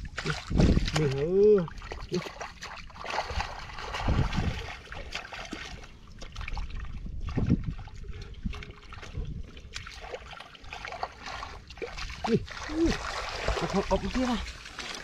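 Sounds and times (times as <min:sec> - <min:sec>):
hands splashing in muddy water: 0:00.0 - 0:15.0.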